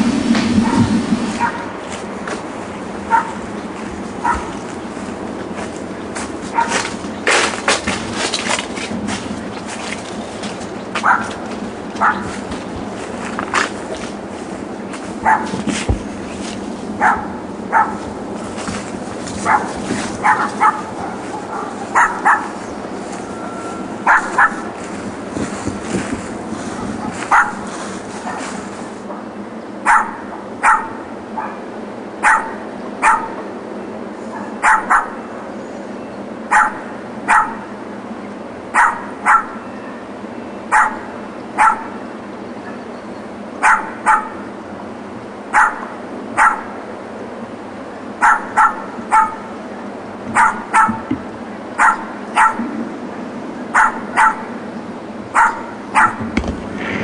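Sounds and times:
small dog yapping: 3.1s - 3.4s, 6.5s - 6.9s, 11.0s - 11.4s, 12.0s - 12.3s, 19.4s - 22.6s, 24.0s - 24.6s, 27.3s - 27.6s, 29.9s - 31.6s, 32.2s - 33.4s, 34.3s - 35.2s, 36.5s - 37.7s, 38.8s - 39.6s, 40.7s - 42.0s, 43.6s - 44.4s, 45.5s - 46.7s, 48.2s - 49.5s, 50.4s - 51.1s, 51.8s - 52.6s, 53.8s - 54.5s, 55.4s - 56.2s.

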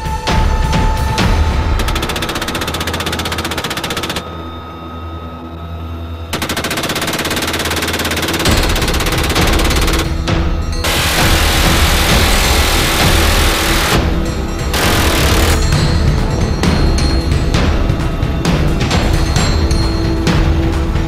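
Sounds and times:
helicopter noise: 1.8s - 4.2s, 6.4s - 10.1s, 10.8s - 14.1s, 14.7s - 15.8s
minigun firing bursts: 1.8s - 4.2s, 6.4s - 10.2s, 10.8s - 14.0s, 14.7s - 15.8s.

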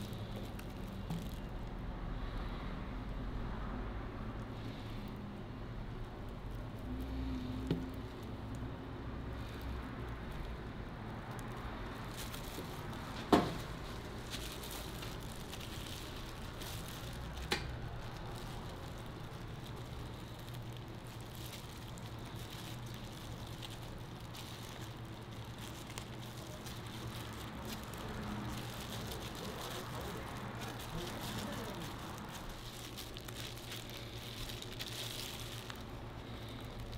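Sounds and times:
steady low hum: 0.0s - 36.9s
griddle sizzling and crackling: 9.6s - 36.9s.

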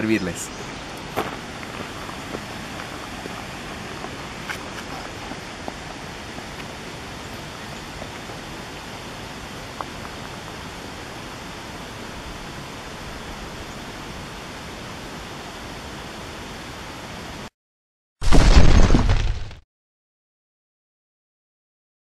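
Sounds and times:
steady outdoor hiss: 0.0s - 17.5s
loud crash: 18.2s - 19.6s.

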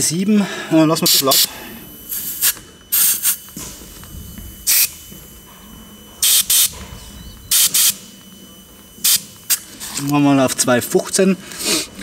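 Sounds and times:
air hissing from tyre valve: 1.0s - 3.7s, 4.5s - 5.0s, 6.2s - 8.1s.

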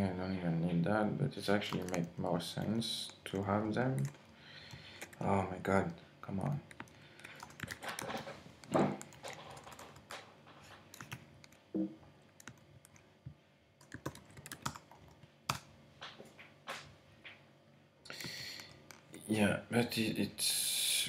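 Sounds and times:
keyboard typing: 1.5s - 11.6s, 12.4s - 13.0s, 13.8s - 15.7s.

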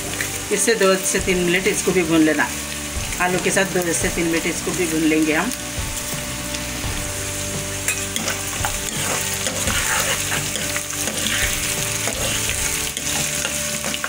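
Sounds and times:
onions sizzling in hot oil: 0.0s - 14.0s
spatula scraping and tapping pan: 7.8s - 14.0s.

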